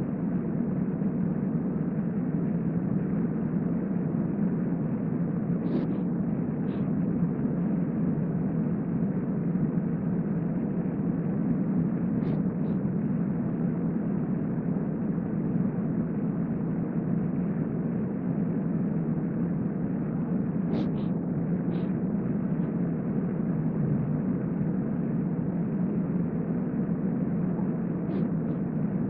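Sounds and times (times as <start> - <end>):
low room hum: 0.0 - 29.0.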